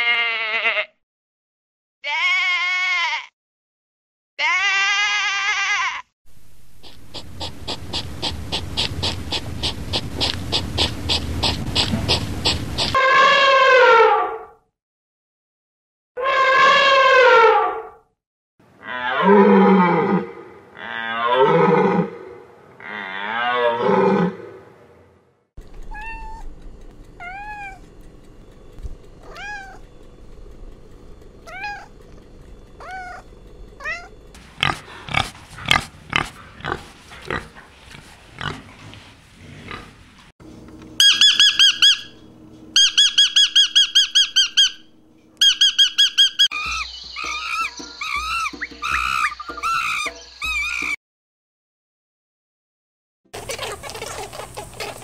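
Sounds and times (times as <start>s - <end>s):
cat meowing: 2.0s - 3.3s, 4.4s - 6.0s, 25.8s - 26.5s, 27.2s - 27.8s, 29.2s - 29.9s, 31.4s - 32.0s, 32.8s - 34.2s
elephant calling: 41.0s - 42.2s, 42.8s - 51.0s
lovebird chirping shrilly: 41.0s - 42.2s, 42.8s - 50.9s.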